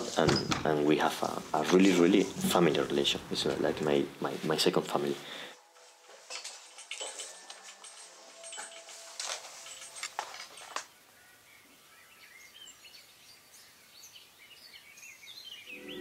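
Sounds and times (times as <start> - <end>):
faint outdoor hiss: 0.0 - 16.0
small birds chirping: 10.9 - 16.0.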